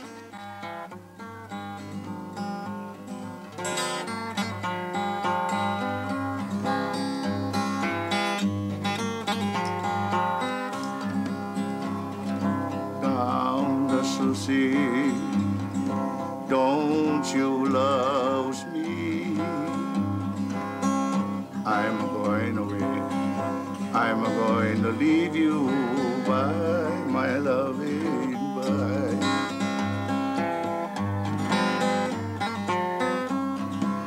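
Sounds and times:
acoustic guitar playing: 0:00.0 - 0:34.0.

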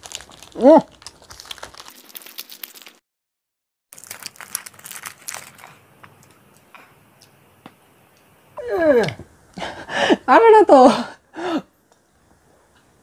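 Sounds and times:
wrappers crinkling: 0:00.0 - 0:03.0, 0:03.9 - 0:06.4.

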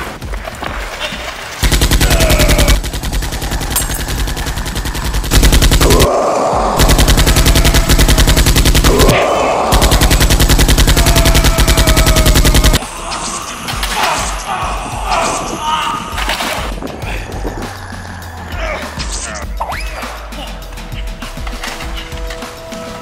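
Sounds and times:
rapid automatic gunfire: 0:01.6 - 0:06.2, 0:06.8 - 0:12.8.

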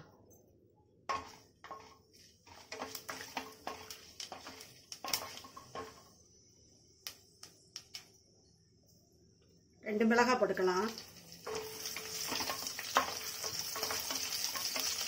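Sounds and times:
spices sizzling in oil: 0:01.1 - 0:06.4, 0:10.4 - 0:15.0.

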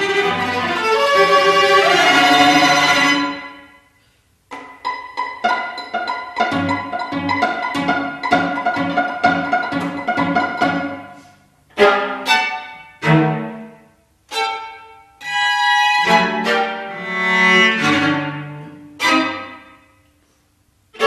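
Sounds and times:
string trio playing chamber music: 0:00.0 - 0:03.8, 0:04.5 - 0:20.0.

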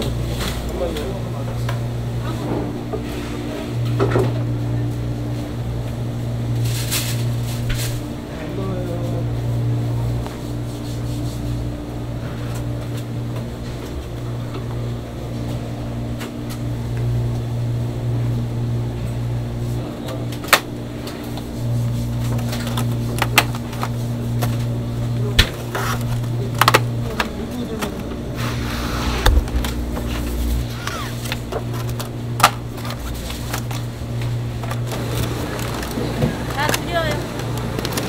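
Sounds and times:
low machine hum: 0:00.0 - 0:38.0.

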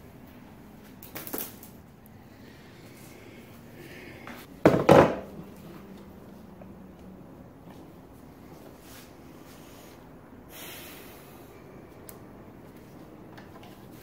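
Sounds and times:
cable clattering on concrete: 0:01.0 - 0:01.8.

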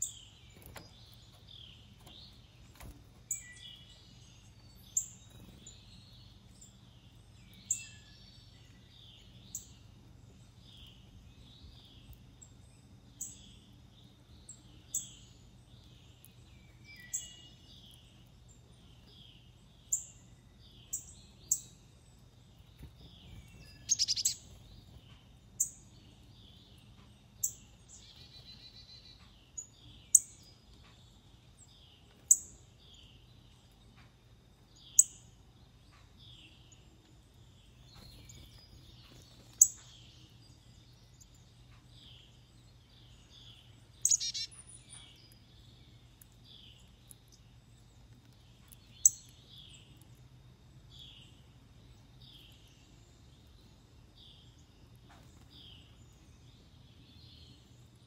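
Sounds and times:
chorus of soft bird chirps: 0:00.0 - 0:58.0
rapid bird trill: 0:23.7 - 0:24.6, 0:44.0 - 0:45.1.

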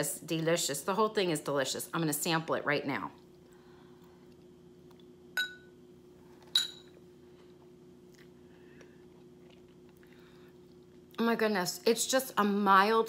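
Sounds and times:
faint steady hum: 0:00.0 - 0:13.0
spoon clinking on bowl: 0:05.4 - 0:05.7, 0:06.5 - 0:06.9.

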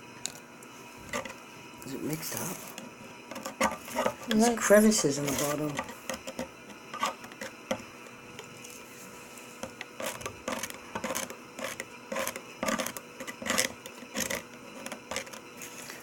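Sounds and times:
plastic spoon stirring water in cup: 0:02.2 - 0:08.8, 0:09.6 - 0:16.0
spoon scraping and tapping cup: 0:09.6 - 0:15.4.

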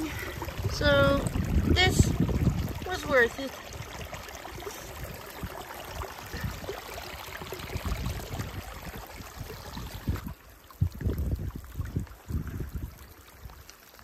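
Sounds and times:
low rumbles: 0:00.0 - 0:03.9
water trickling in channel: 0:00.0 - 0:14.0.

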